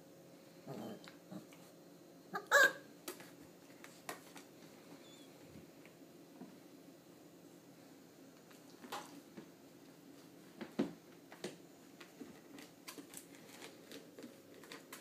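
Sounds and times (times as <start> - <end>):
puppy claws scratching plastic: 12.3 - 15.0.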